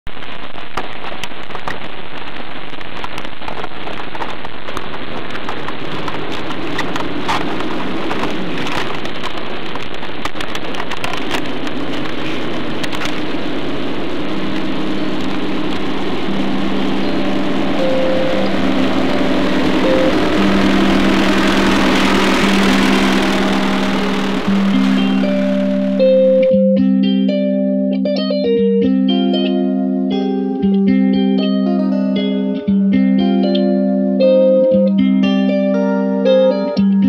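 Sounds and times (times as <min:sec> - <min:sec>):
rain-like hiss with crackles: 0:00.1 - 0:26.2
low held musical notes: 0:12.2 - 0:37.0.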